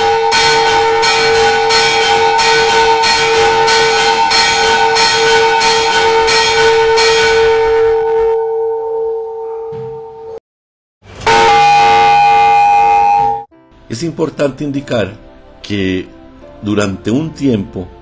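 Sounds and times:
church bells ringing: 0:00.0 - 0:08.6, 0:11.2 - 0:13.5.

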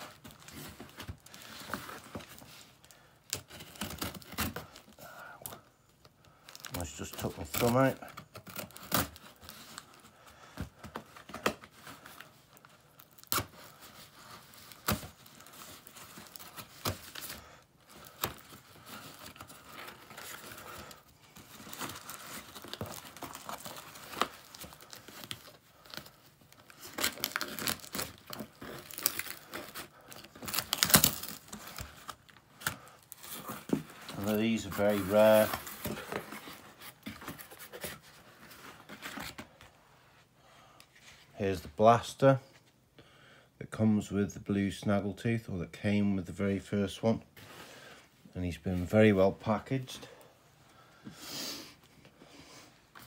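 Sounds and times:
cardboard and tape tearing: 0:00.0 - 0:05.6, 0:06.5 - 0:10.0, 0:10.8 - 0:39.6.

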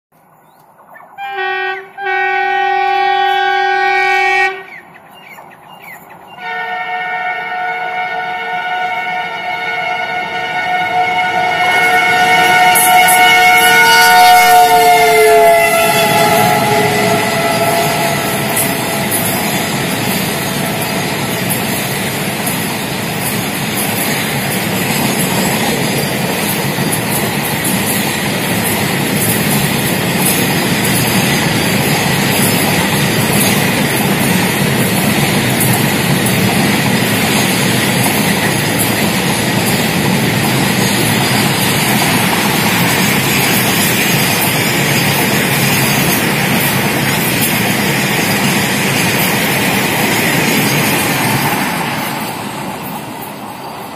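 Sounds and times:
train wheels rumbling on rails: 0:00.1 - 0:53.9
train horn: 0:01.2 - 0:04.9, 0:06.3 - 0:21.9.

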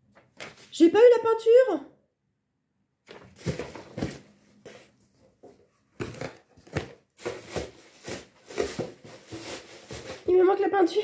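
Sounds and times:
paper and packaging crinkling: 0:03.1 - 0:05.0, 0:05.9 - 0:11.0.

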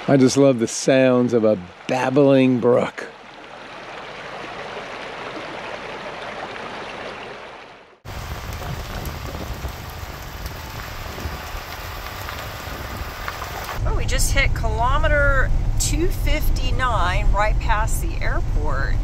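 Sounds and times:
creek babbling over stones: 0:00.0 - 0:13.8
motorhome driving rumble: 0:08.1 - 0:19.0.

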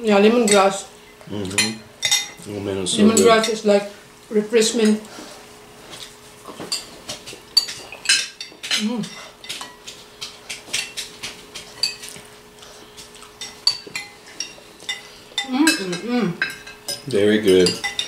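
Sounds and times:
cutlery clinking on ceramic plates: 0:00.4 - 0:00.7, 0:06.5 - 0:12.2, 0:13.4 - 0:18.0.

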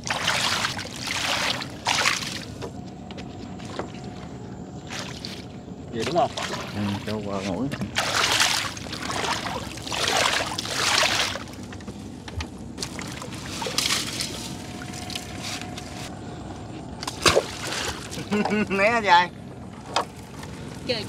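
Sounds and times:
water splashing and pouring: 0:00.0 - 0:02.6, 0:07.9 - 0:11.5, 0:12.8 - 0:15.4
wet net being hauled: 0:06.1 - 0:11.6, 0:12.8 - 0:16.1.

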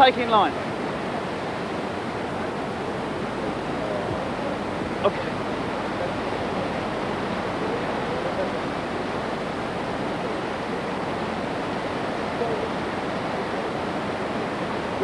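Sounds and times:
river rushing through rapids: 0:00.0 - 0:15.0.

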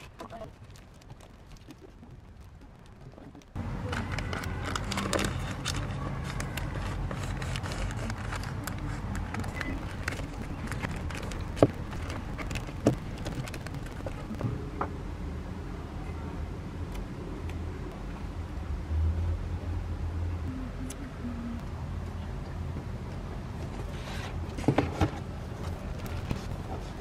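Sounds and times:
paper crinkling and rustling: 0:00.0 - 0:14.5, 0:23.8 - 0:27.0
steady background hum: 0:00.0 - 0:27.0.

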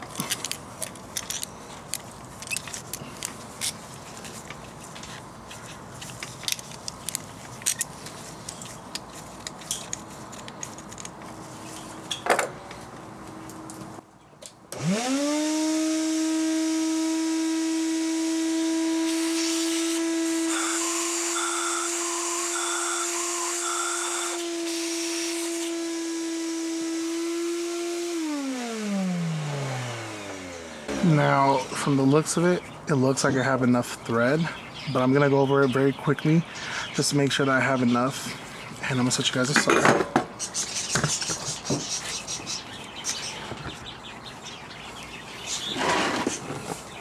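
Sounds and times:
small clicks and scrapes: 0:00.0 - 0:11.9
shop vacuum whining: 0:14.7 - 0:31.9.

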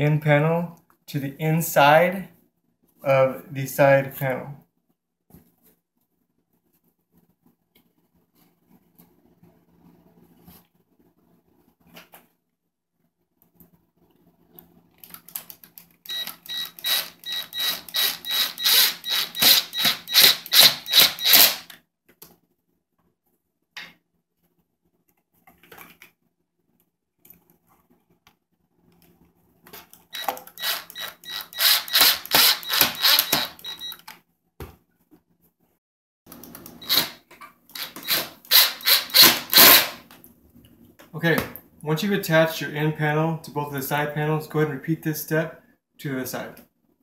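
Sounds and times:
cordless driver driving screws: 0:16.1 - 0:21.7, 0:30.2 - 0:34.1, 0:36.8 - 0:40.0.

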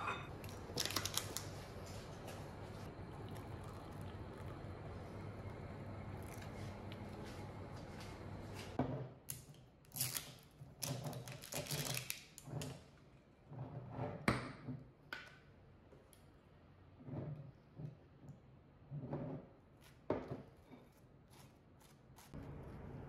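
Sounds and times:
hot water pouring into mug: 0:02.9 - 0:05.6.

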